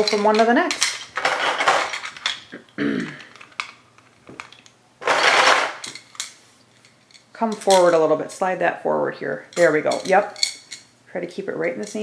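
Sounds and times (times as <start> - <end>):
plastic beads clattering: 0.0 - 6.4.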